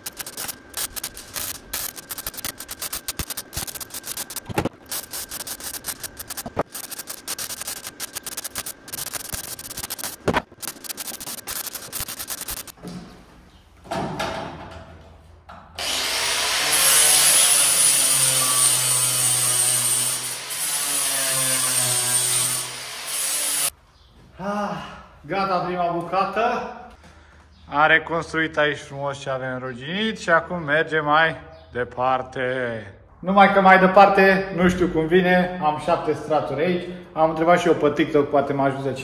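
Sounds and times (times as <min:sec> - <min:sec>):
mig welding crackle: 0:00.0 - 0:12.8, 0:15.8 - 0:23.8
angle grinder whining: 0:15.8 - 0:23.7.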